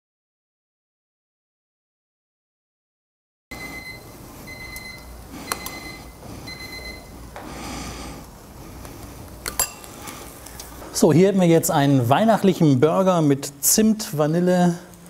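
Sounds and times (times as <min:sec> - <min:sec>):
grill timer alarm beeping: 0:03.5 - 0:07.3.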